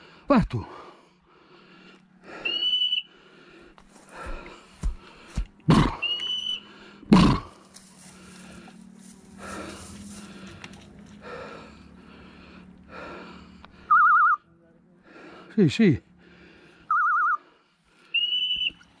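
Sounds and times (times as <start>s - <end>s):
footsteps on a steep slope: 3.7s - 6.4s, 7.3s - 11.2s
rustling of scrub: 7.5s - 11.2s
dog whistle high note: 18.2s - 18.8s.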